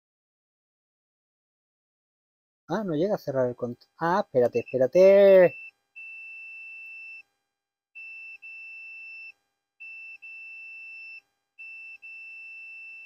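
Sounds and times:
high-pitched multimeter beep: 4.4s - 7.2s, 8.0s - 13.0s.

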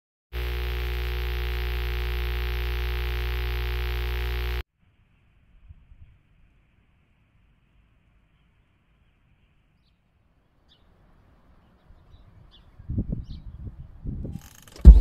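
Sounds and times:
loud steady hum: 0.4s - 4.6s
faint background noise: 4.8s - 14.5s.

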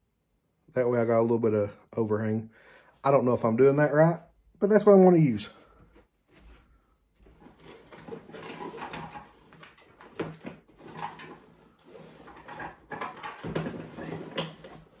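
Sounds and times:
tools rustling and clattering: 7.2s - 15.0s.

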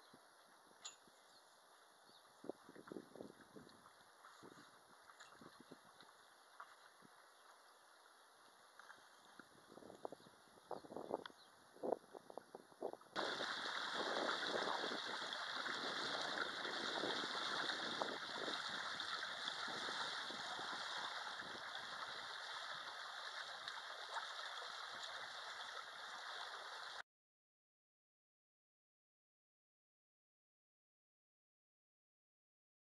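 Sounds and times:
faint splashes of small waves: 13.2s - 27.0s
water rushing past hull: 13.2s - 27.0s.

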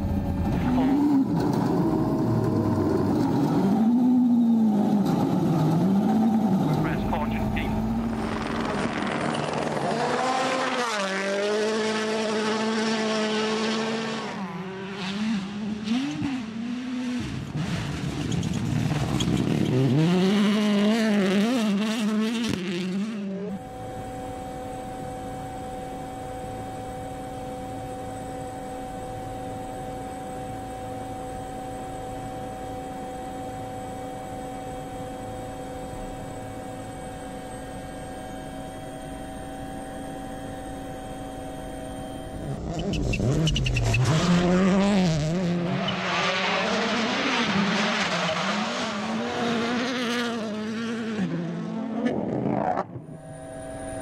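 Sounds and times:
rally car engine revving: 0.0s - 28.4s, 40.9s - 54.0s
steady even hum: 23.6s - 42.8s, 53.0s - 54.0s.

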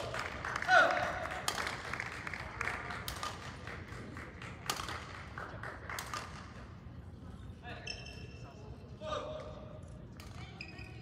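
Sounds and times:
rackets striking shuttlecocks: 0.9s - 6.7s.

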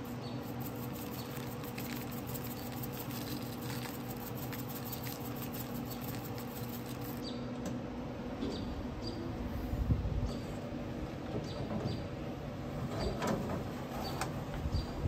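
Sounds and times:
seasoning granules pattering: 0.0s - 7.2s
steady low hum: 0.0s - 15.0s.

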